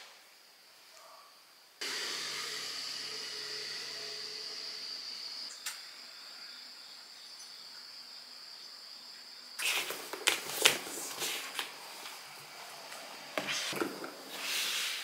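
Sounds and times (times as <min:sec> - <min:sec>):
faint steady hiss: 0:00.0 - 0:01.9.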